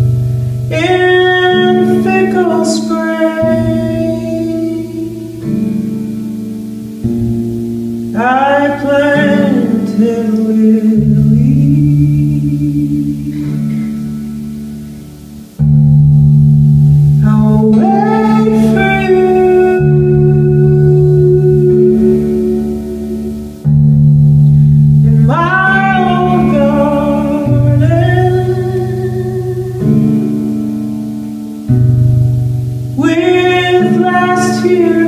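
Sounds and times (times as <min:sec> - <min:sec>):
acoustic guitar strumming: 0:00.0 - 0:35.0
wordless singing: 0:00.7 - 0:06.1, 0:08.1 - 0:14.0, 0:17.2 - 0:23.6, 0:25.0 - 0:30.6, 0:33.0 - 0:35.0.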